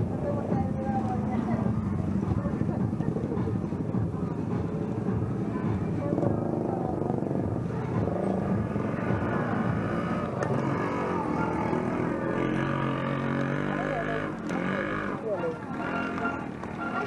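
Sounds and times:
motorcycle engines running: 0:00.0 - 0:17.0
motorcycle passing by: 0:06.0 - 0:17.0.

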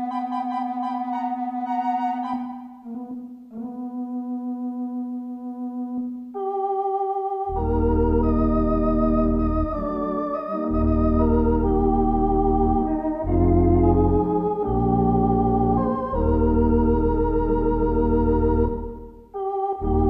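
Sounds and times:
theatre organ chords: 0:00.0 - 0:20.0
deep pedal bass: 0:07.6 - 0:10.0, 0:10.6 - 0:20.0.

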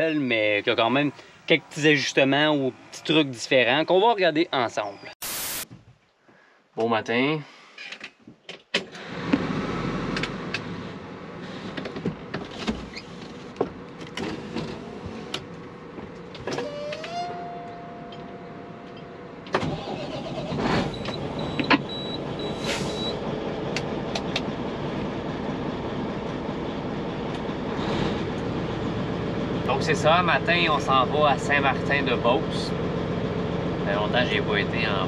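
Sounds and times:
diesel engine running: 0:13.1 - 0:35.0.

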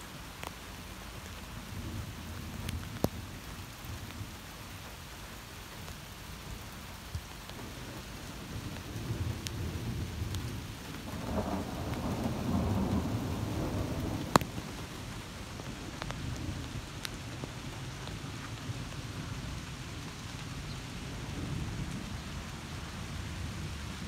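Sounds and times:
steady rain: 0:00.0 - 0:24.0
rumble of thunder: 0:07.6 - 0:24.0.

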